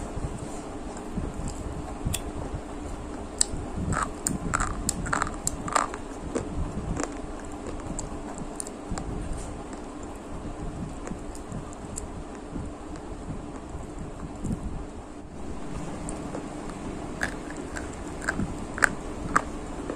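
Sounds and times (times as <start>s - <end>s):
chewing crispy fried sticks: 3.4s - 10.2s, 15.8s - 19.9s.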